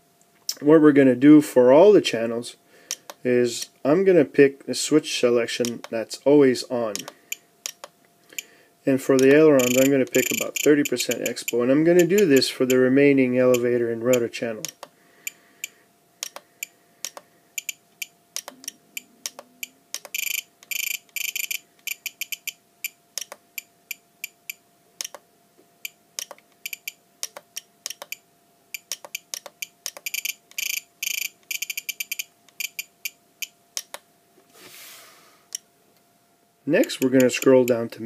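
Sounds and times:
faint steady hum: 0:00.0 - 0:38.0
scroll roller clicking: 0:09.2 - 0:12.8, 0:36.8 - 0:37.8
radio transmitter short beeps: 0:09.6 - 0:11.6.

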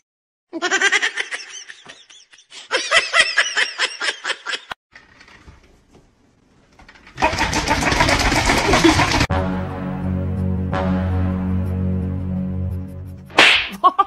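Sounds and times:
person laughing hard: 0:00.6 - 0:04.8, 0:07.2 - 0:09.3, 0:13.7 - 0:14.0.

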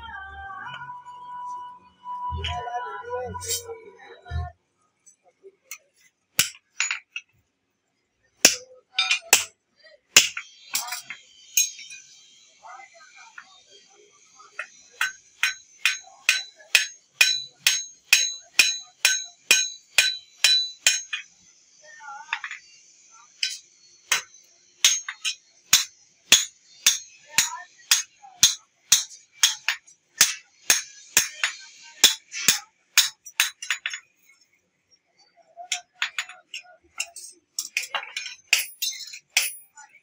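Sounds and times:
hammer striking metal on anvil: 0:06.4 - 0:07.0, 0:08.4 - 0:09.5, 0:10.2 - 0:12.1, 0:14.6 - 0:21.3, 0:23.4 - 0:34.0, 0:35.7 - 0:39.7.

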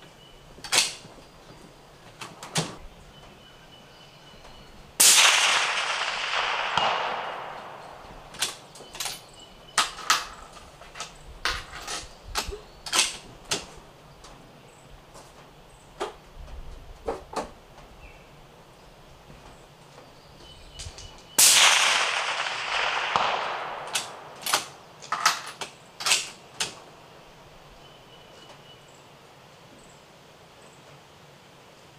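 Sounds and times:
rifle bolt clicks and clacks: 0:00.6 - 0:01.0, 0:05.9 - 0:13.7, 0:22.4 - 0:26.8
suppressed rifle shot: 0:05.0 - 0:08.9, 0:21.4 - 0:24.9.

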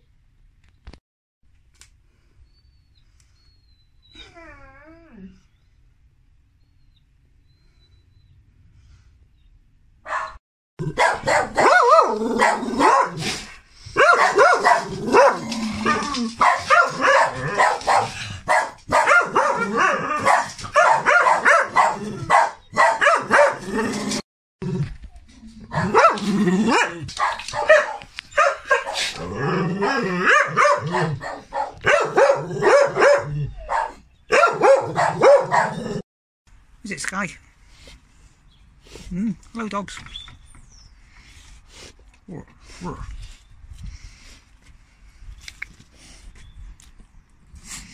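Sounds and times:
dogs barking: 0:10.0 - 0:13.3, 0:14.0 - 0:23.7, 0:25.7 - 0:36.0.

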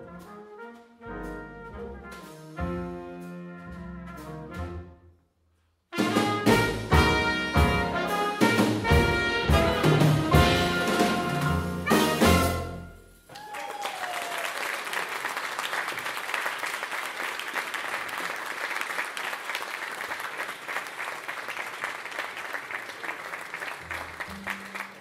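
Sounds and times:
jazz band final note: 0:06.0 - 0:13.0
audience applauding: 0:13.3 - 0:25.0.

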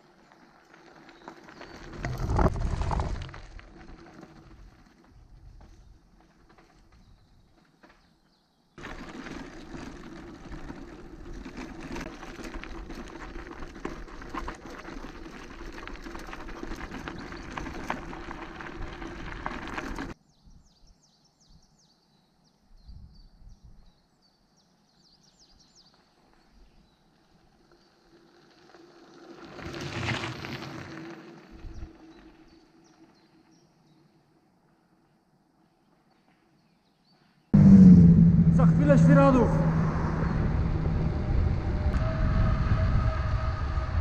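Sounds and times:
bicycle tyres crunching on gravel: 0:00.0 - 0:20.2, 0:25.6 - 0:36.6
wind on microphone: 0:39.6 - 0:44.0.

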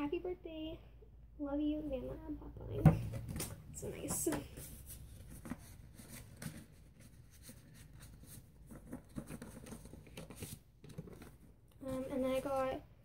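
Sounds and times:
paper card rustling: 0:03.3 - 0:12.7.

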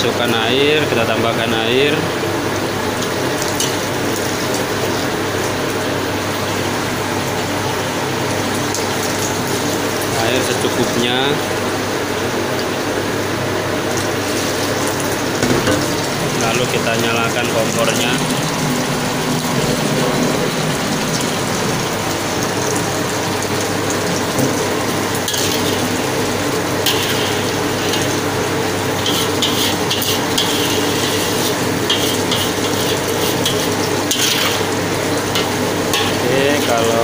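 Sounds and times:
spatula scraping wok: 0:25.3 - 0:25.9, 0:26.8 - 0:28.2, 0:28.9 - 0:36.8
sizzling hiss: 0:25.3 - 0:37.0.

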